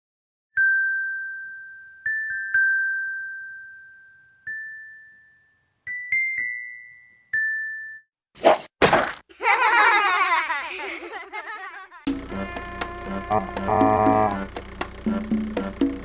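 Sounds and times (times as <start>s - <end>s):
glockenspiel chiming jingle: 0.6s - 8.1s.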